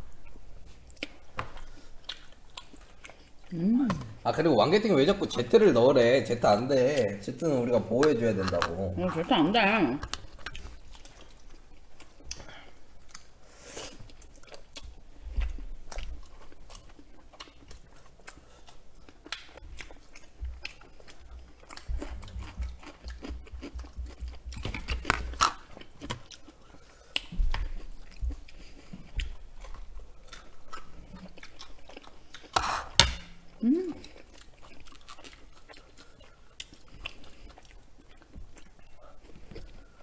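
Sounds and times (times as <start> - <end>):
close chewing: 0.2 - 3.6, 7.9 - 32.6, 33.6 - 40.0
crunchy bites: 24.5 - 26.3.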